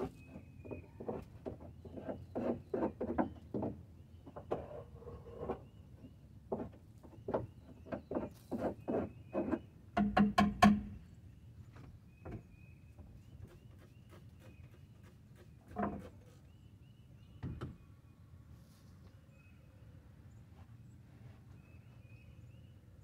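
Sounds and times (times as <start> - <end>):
scraping on wood: 0.0 - 5.7, 6.5 - 9.6
knocks on wood: 10.0 - 11.0.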